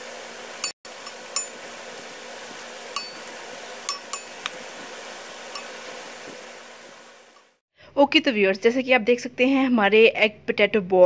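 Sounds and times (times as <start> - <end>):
deep-frying oil hissing: 0.0 - 7.6
spoon clinking against pan: 3.0 - 4.5, 5.6 - 5.8.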